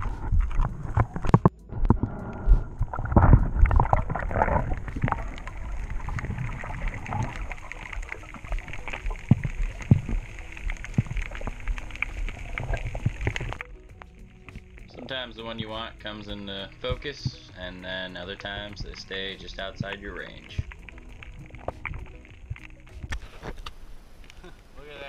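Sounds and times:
underwater clicks and crackles: 0.0s - 24.7s
muffled underwater rumble: 0.0s - 24.8s.

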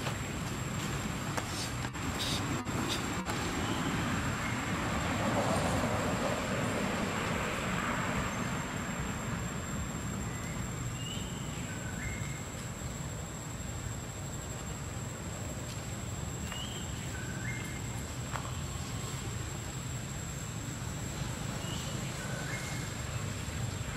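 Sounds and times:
outdoor rushing noise: 0.0s - 11.0s.

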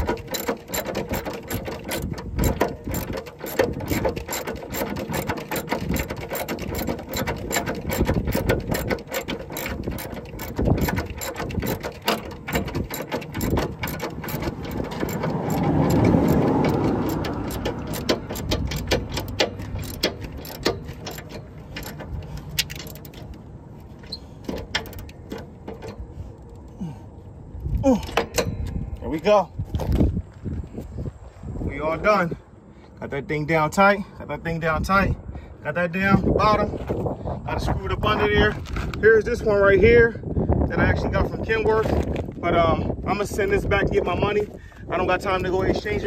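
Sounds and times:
ratchet wrench clicking: 0.0s - 23.4s.

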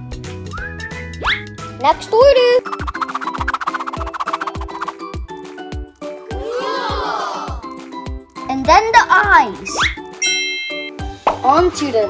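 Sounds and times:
upbeat music with drum beat: 0.0s - 6.4s, 7.5s - 11.7s
overlapping rising and falling tones: 1.2s - 5.2s.

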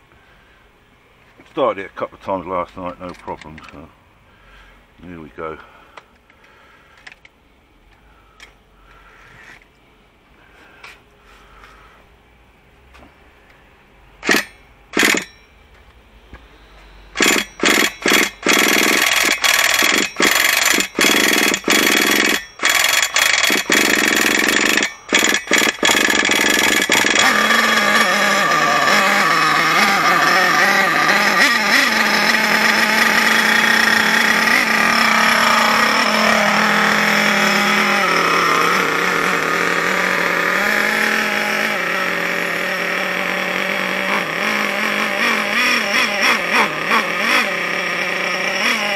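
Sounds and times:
small engine cranking and firing: 14.2s - 15.4s, 17.1s - 48.9s
small engine running: 14.2s - 15.5s, 16.6s - 48.9s.

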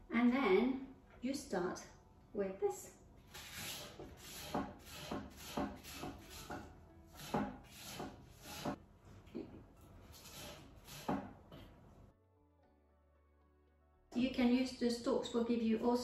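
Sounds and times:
shredding tool scraping spring onion: 3.3s - 8.8s, 10.0s - 11.3s.

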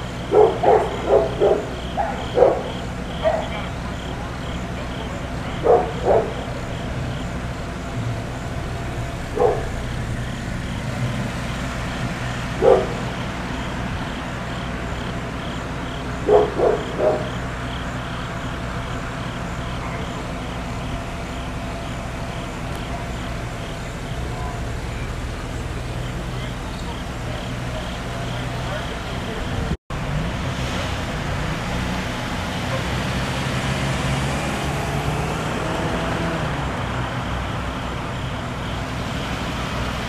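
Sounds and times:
vehicle engines idling: 0.0s - 40.0s
dog barking: 0.2s - 4.0s, 5.5s - 6.6s, 9.3s - 10.0s, 12.6s - 13.2s, 16.2s - 17.4s, 32.7s - 33.0s.

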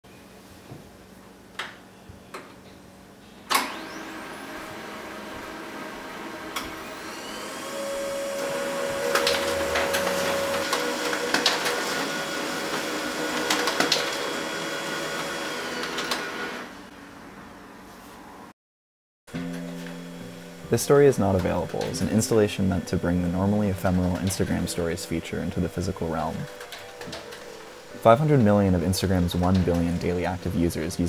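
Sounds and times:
printer motors whirring: 3.5s - 16.7s, 21.2s - 31.0s
printer clicks: 9.0s - 12.0s, 26.4s - 27.8s
printer mechanism clack: 26.4s - 27.6s.

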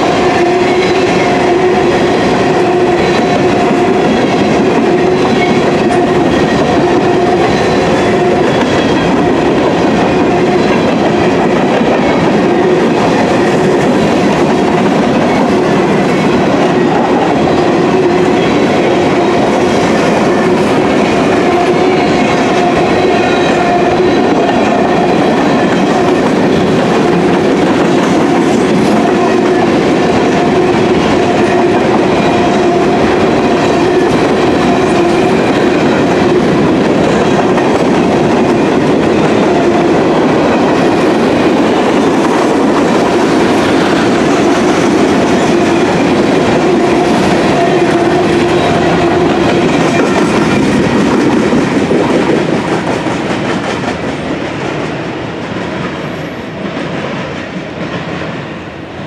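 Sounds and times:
train wheels clacking on rails: 0.0s - 59.0s.

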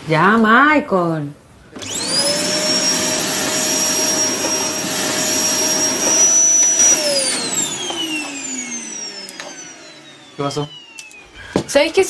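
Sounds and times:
vacuum cleaner running: 1.7s - 12.0s
vacuum motor winding down: 1.8s - 12.0s.

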